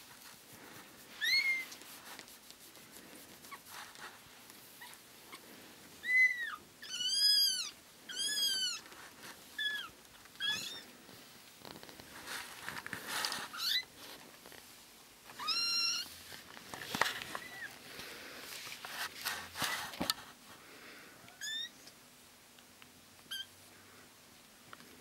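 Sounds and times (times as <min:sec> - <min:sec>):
soft rustling: 0:00.0 - 0:20.7.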